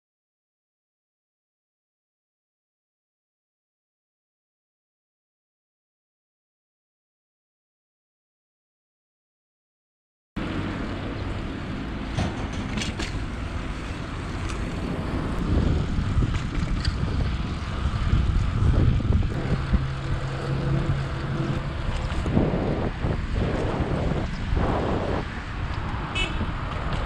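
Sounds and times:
tyre and road noise: 10.4 - 27.0
wind on microphone: 12.2 - 27.0.

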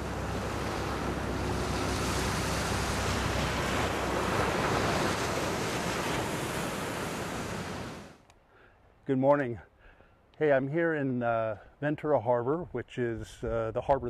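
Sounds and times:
ocean waves breaking on beach: 0.0 - 8.2.

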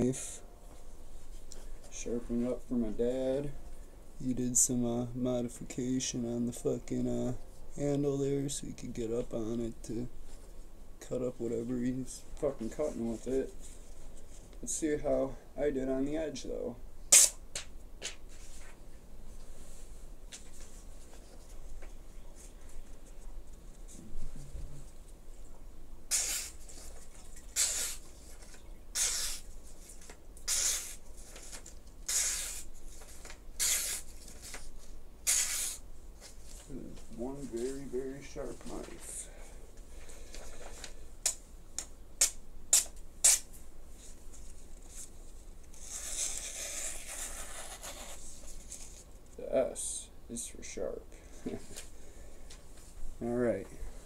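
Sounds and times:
knife slicing through paper: 26.1 - 26.9, 29.0 - 29.4, 35.3 - 35.8
knife slicing paper: 26.1 - 27.0, 27.6 - 28.0, 28.9 - 29.5, 30.4 - 32.7, 33.6 - 34.6, 35.2 - 35.8.

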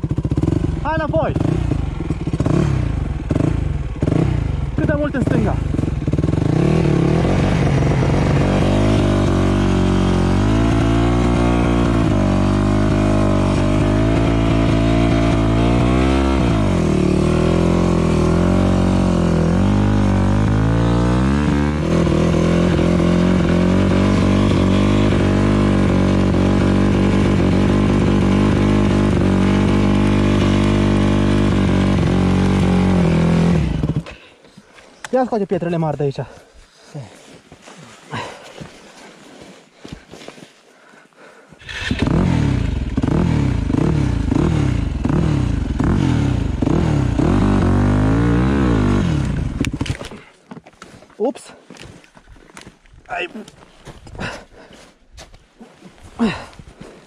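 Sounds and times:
motorcycle engine revving: 0.0 - 34.2, 41.6 - 50.3, 56.2 - 56.5.

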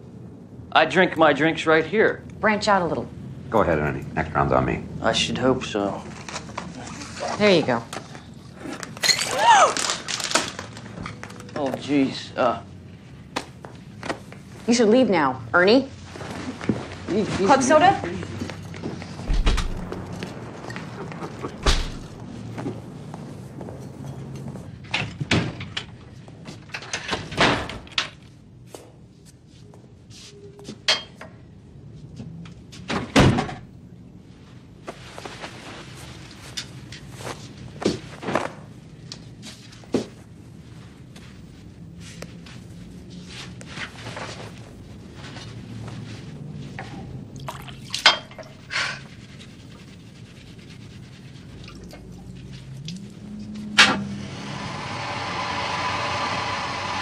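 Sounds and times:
rustle of clothing being pulled off: 16.0 - 24.8, 34.3 - 47.7
knocks bangs and thumps: 19.2 - 20.5.

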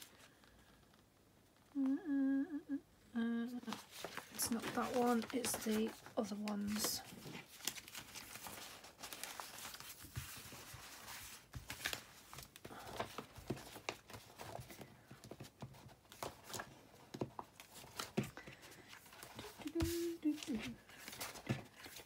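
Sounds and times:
plastic packaging crinkling: 3.7 - 14.6.

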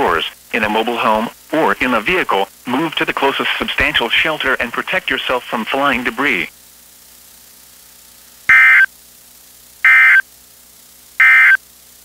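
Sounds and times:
radio hiss: 0.0 - 8.9
digital data tone bursts: 8.5 - 8.9, 9.8 - 10.2, 11.2 - 11.6.

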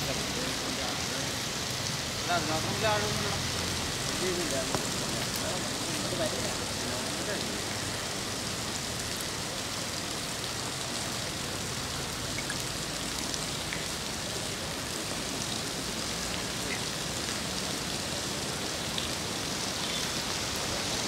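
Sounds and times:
rain falling on water: 0.0 - 21.0.

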